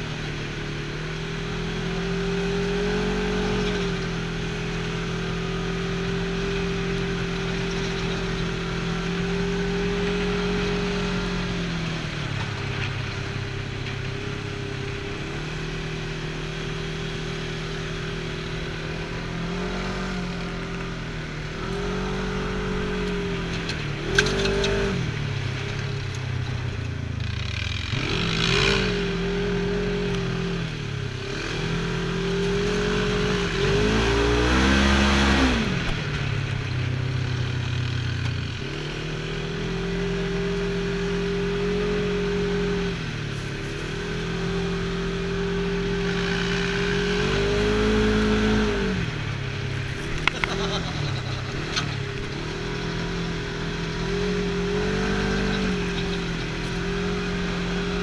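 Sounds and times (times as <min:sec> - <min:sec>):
utility vehicle engine running: 0:00.0 - 0:58.0.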